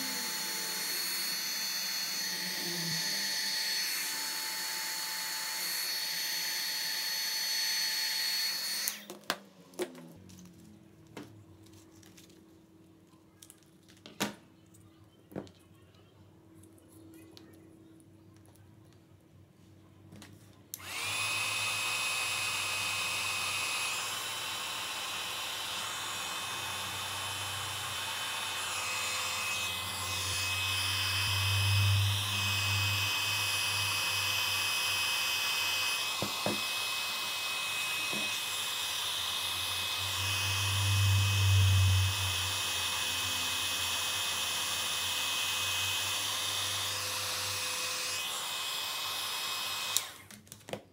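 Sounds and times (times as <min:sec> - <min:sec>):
hot air gun fan whine: 0:00.0 - 0:09.2, 0:20.7 - 0:50.3.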